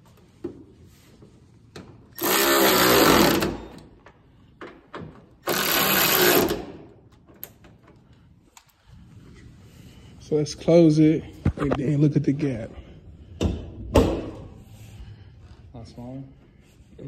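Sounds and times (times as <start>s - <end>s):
power ratchet spinning: 2.1s - 3.8s, 5.4s - 6.8s.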